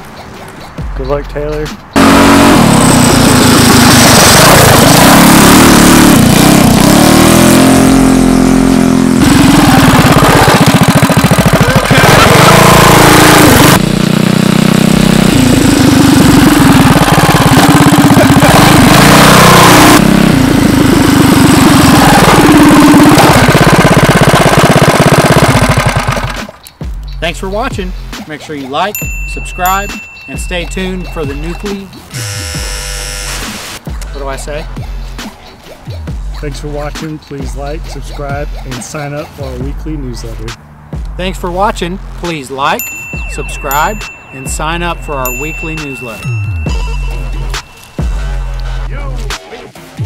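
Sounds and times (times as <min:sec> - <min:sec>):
mini bike engine revving: 0:02.0 - 0:26.6, 0:32.1 - 0:33.5.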